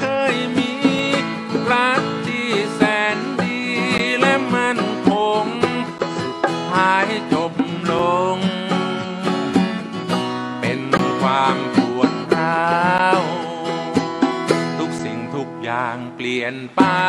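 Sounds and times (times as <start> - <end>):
plucked strings: 0.0 - 14.8
sliding lead melody: 7.7 - 10.0.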